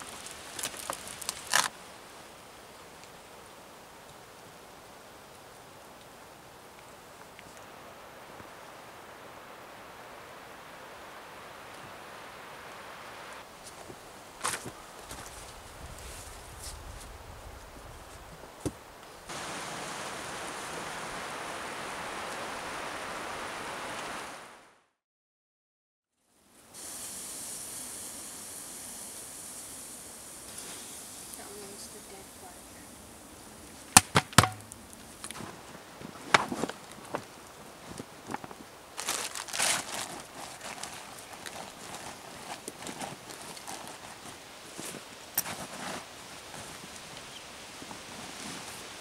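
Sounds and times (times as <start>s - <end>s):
crinkling rustle: 0.0s - 1.8s, 33.7s - 49.0s
sharp knock: 34.0s - 34.6s.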